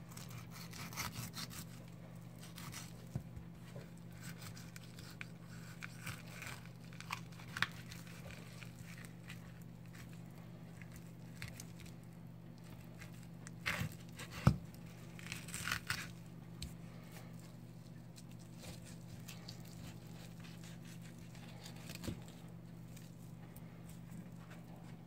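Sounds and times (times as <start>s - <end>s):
steady low hum: 0.0s - 25.0s
knife slicing and scraping meat: 0.1s - 10.2s, 18.0s - 22.4s.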